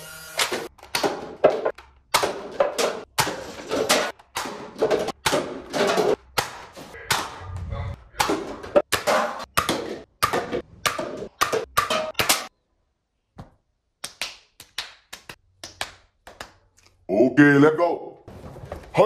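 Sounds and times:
paper cups clacking and thudding: 0.6s - 7.4s.

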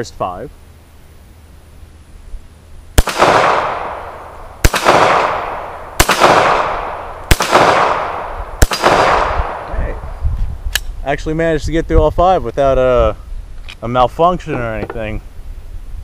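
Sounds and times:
pistol shots with long echo: 3.0s - 9.7s.

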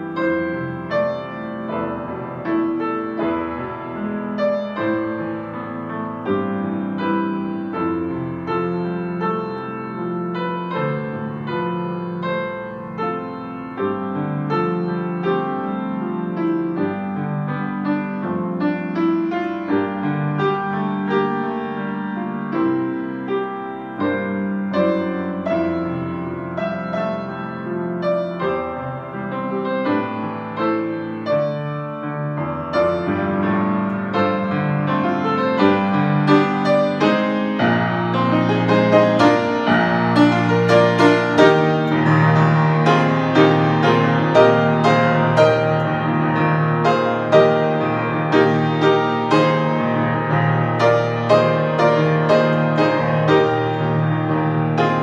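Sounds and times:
grand piano playing: 0.0s - 55.0s.

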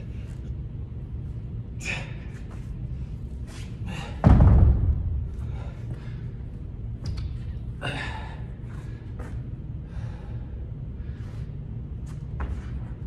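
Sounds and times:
low hum: 0.0s - 13.0s
man gasping breaths: 5.3s - 6.6s, 7.7s - 11.6s.

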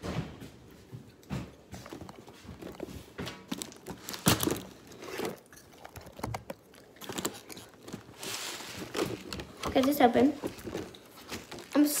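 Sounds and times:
packaging rustling: 1.8s - 12.0s.

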